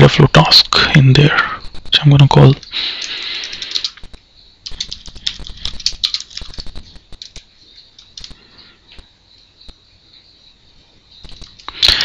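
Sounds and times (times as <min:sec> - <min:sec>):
keyboard typing clicks: 0:02.5 - 0:08.4, 0:11.2 - 0:12.0.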